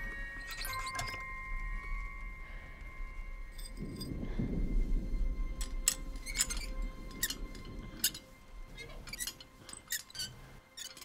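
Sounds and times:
small metal parts clinking: 0.0 - 2.0, 9.0 - 11.0
low rumble: 0.0 - 9.8.

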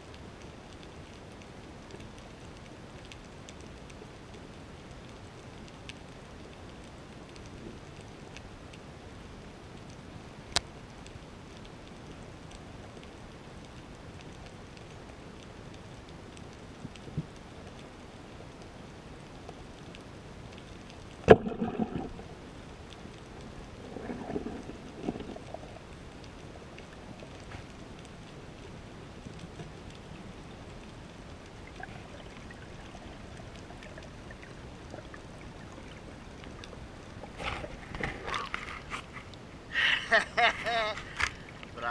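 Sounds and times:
faint clicks: 0.1 - 8.8, 9.7 - 39.4
underwater low rush: 21.2 - 27.9, 30.2 - 40.0.

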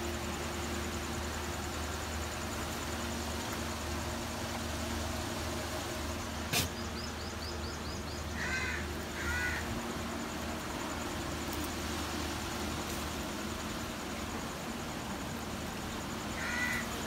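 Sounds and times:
crow cawing: 8.4 - 9.7, 16.3 - 17.0.

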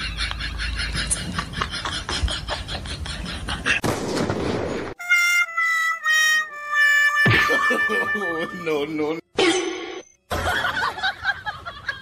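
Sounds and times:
comic descending horn notes: 5.0 - 8.9.

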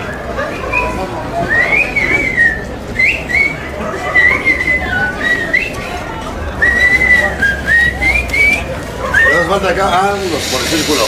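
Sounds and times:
person whistling a tune: 0.7 - 5.9, 6.6 - 9.5.

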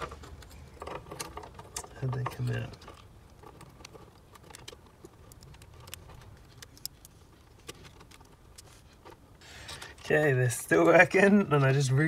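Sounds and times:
low steady background hum: 0.0 - 12.0
small clicks of circuit board handling: 4.4 - 8.8.

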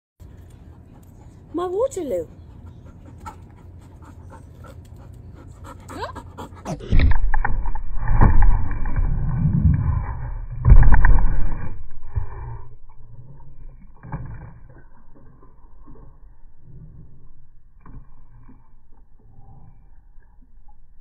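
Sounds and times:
dog panting: 0.4 - 6.8.

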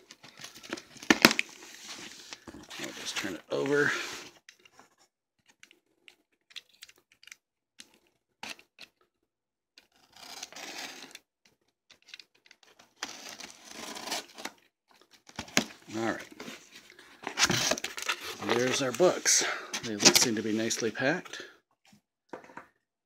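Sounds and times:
cardboard scraping and rustling: 15.4 - 20.8.

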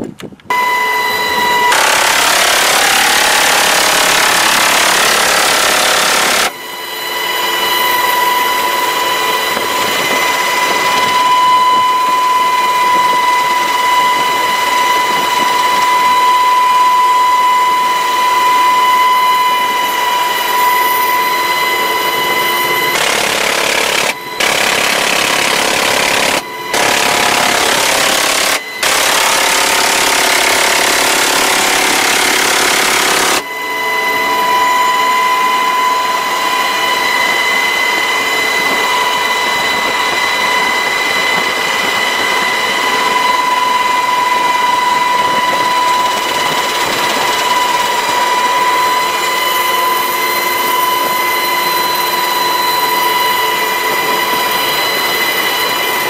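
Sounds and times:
helicopter cabin whine: 0.0 - 56.0
minigun firing bursts: 1.7 - 6.5, 22.9 - 33.4.

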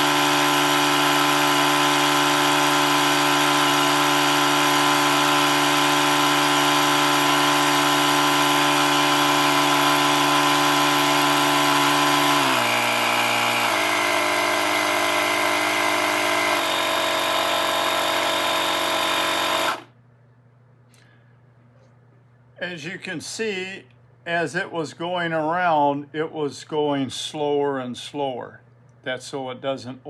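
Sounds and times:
tire inflator compressor running: 0.0 - 19.9.

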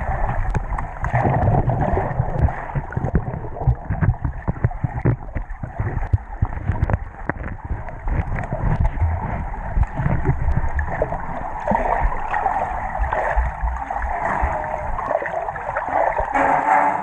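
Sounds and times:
knocks of people in pool: 0.0 - 17.0
water sloshing underwater: 0.0 - 17.0.

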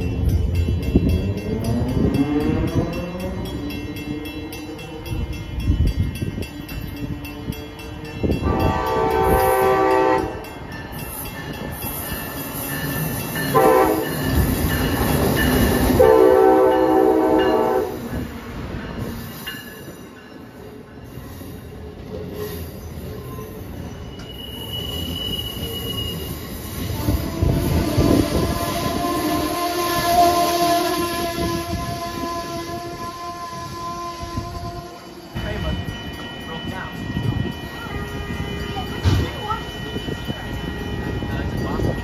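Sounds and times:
train wheels rumbling on rail: 0.0 - 42.0
locomotive air horn blasts: 8.4 - 10.4, 13.5 - 14.1, 16.0 - 18.0, 26.9 - 35.2
high wheel squeal: 21.0 - 33.0.

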